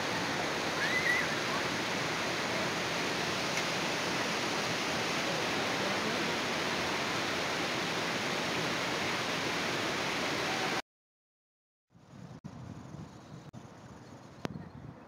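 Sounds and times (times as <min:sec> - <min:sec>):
waterfall rushing: 0:00.0 - 0:10.8.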